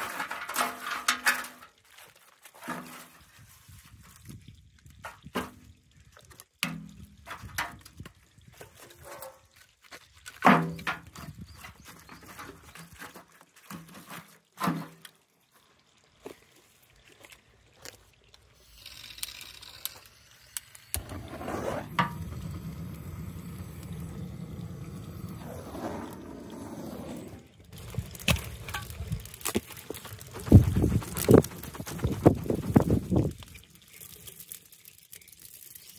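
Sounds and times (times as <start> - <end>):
steady rushing noise: 30.2 - 33.3.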